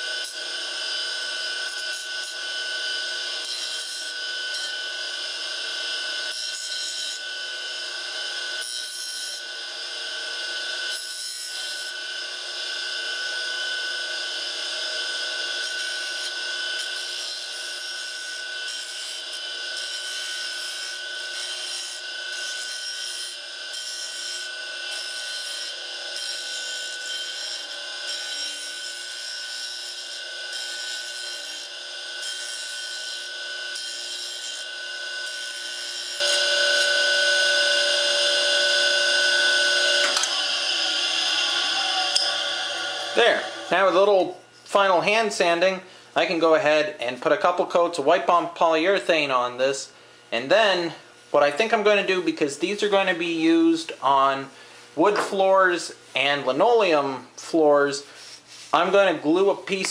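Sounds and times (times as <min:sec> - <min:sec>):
saw motor whine: 0:00.0 - 0:44.6
sanding disc rubbing on wood: 0:58.2 - 0:58.8.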